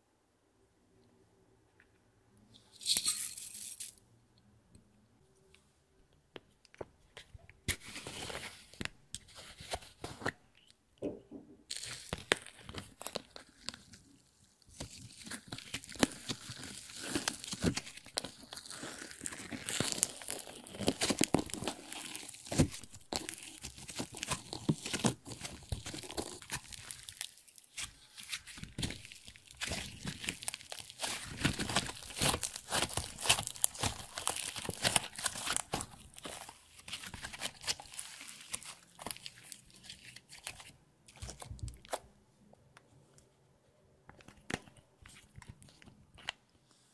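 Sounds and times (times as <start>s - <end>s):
slime crackling and popping: 14.7s - 42.0s.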